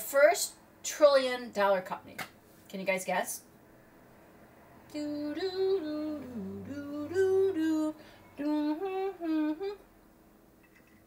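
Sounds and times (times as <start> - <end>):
woman humming a tune: 4.9 - 9.8.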